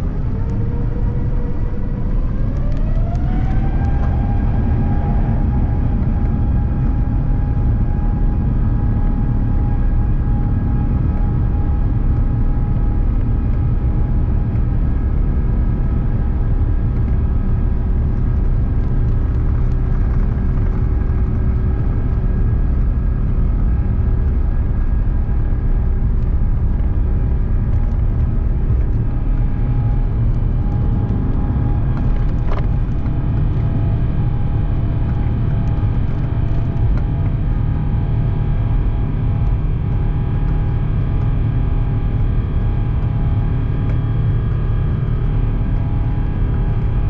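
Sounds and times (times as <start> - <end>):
jet engines roaring with whine: 0.0 - 47.0
wheels rumbling on runway: 0.0 - 47.0.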